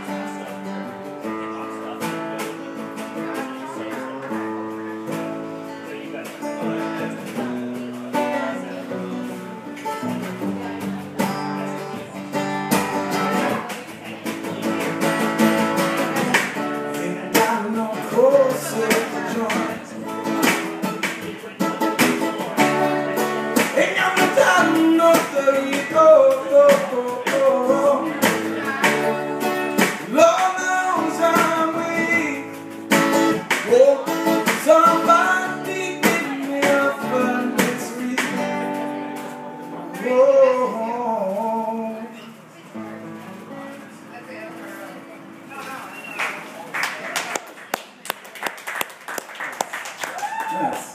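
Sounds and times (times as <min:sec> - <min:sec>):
acoustic guitar strummed: 0:00.0 - 0:46.1
man singing: 0:16.2 - 0:21.8, 0:22.4 - 0:42.4.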